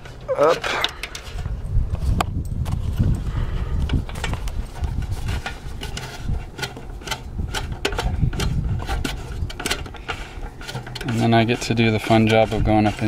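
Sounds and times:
steady low rumble: 0:00.1 - 0:13.0
wire clicking and scraping on box: 0:03.8 - 0:13.0.

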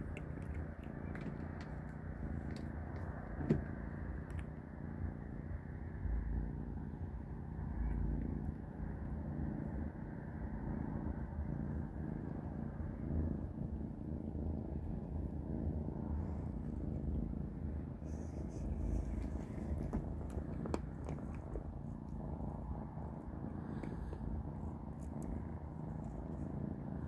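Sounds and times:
faint clicks: 0:00.0 - 0:04.6
kitten purring: 0:00.0 - 0:27.0.

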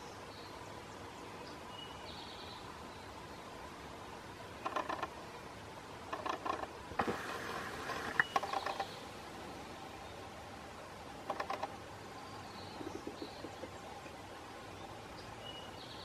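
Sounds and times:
woodpecker tapping on wood: 0:04.6 - 0:05.1, 0:06.1 - 0:08.9, 0:11.2 - 0:11.8, 0:12.8 - 0:14.1.

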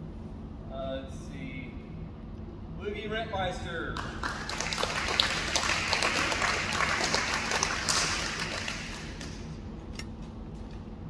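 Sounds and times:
audience clapping: 0:04.0 - 0:09.6.

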